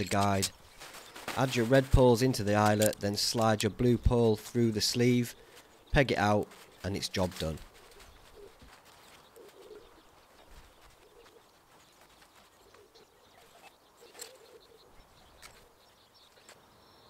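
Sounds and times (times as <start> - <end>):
faint garden ambience: 0.0 - 17.0
pigeon cooing: 7.8 - 11.5, 12.4 - 15.8.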